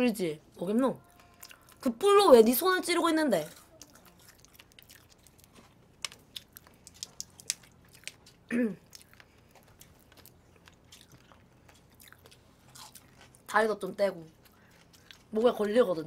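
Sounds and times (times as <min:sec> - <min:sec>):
chewing: 0:01.0 - 0:02.0, 0:03.4 - 0:16.0
shrimp shell crunching: 0:03.4 - 0:13.5.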